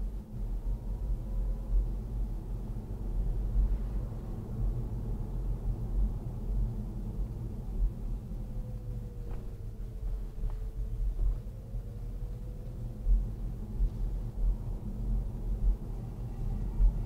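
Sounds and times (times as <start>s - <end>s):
car cabin road rumble: 0.0s - 17.0s
faint engine whine: 0.0s - 17.0s.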